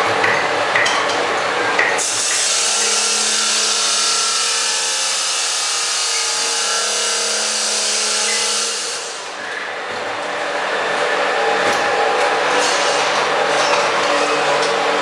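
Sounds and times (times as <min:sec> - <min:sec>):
plastering machine motor hissing: 0:02.0 - 0:09.4.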